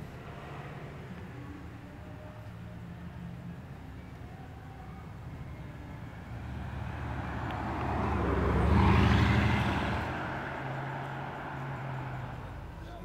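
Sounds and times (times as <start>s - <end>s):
car engine driving past: 4.7s - 13.0s.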